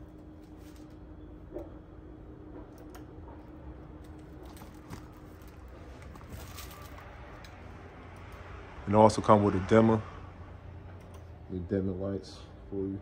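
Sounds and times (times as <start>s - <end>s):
low steady hum: 0.0s - 13.0s
faint clicks and rustles: 2.6s - 7.6s.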